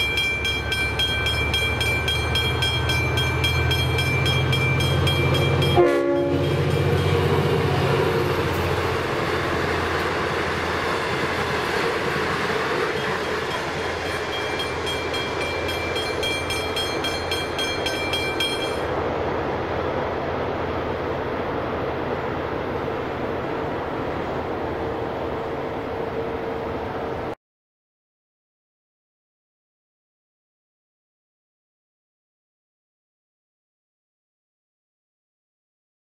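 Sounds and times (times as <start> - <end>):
train wheel and carriage noise: 0.0 - 27.4
train horn toot: 5.6 - 7.2
level crossing bell ringing: 14.0 - 18.9.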